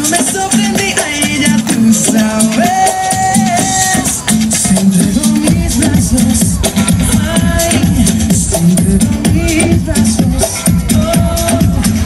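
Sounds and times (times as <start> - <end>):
latin dance music: 0.0 - 12.0.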